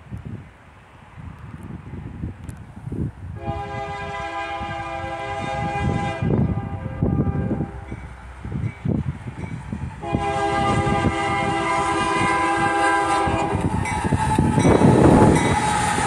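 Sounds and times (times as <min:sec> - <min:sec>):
wind buffeting microphone: 0:00.0 - 0:16.0
locomotive air horn blast: 0:03.4 - 0:07.9, 0:10.0 - 0:16.0.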